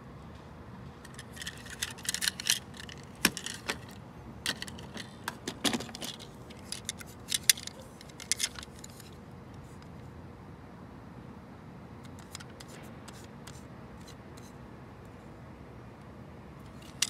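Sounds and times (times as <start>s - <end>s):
toy trucks clicking and clacking: 1.1s - 9.2s
toy wheels rattling: 1.1s - 9.2s.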